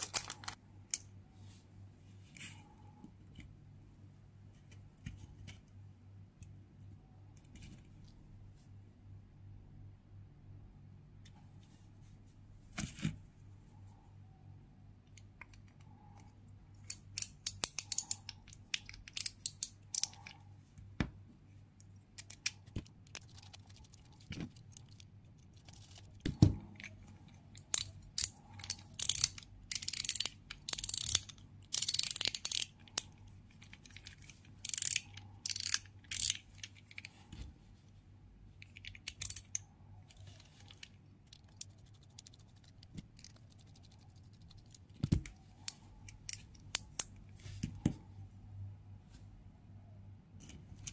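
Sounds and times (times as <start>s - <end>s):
screwdriver clicking and scraping: 16.2s - 20.4s, 27.6s - 37.2s, 38.6s - 39.6s.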